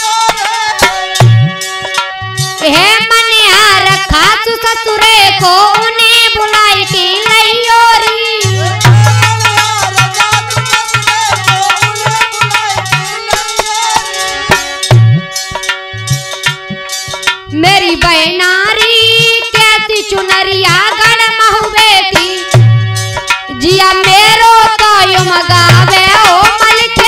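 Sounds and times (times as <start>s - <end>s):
held melody: 0.0s - 27.0s
wavering lead melody: 8.3s - 17.8s.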